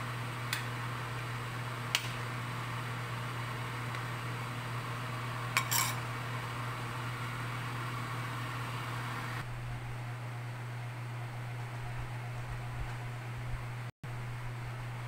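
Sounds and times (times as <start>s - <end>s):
metallic kitchenware clink: 5.6s - 6.0s.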